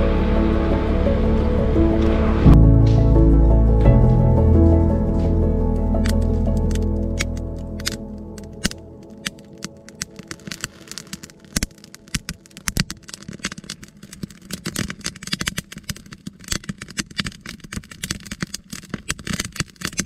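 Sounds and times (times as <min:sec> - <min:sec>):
campfire crackling and popping: 0:05.9 - 0:20.0.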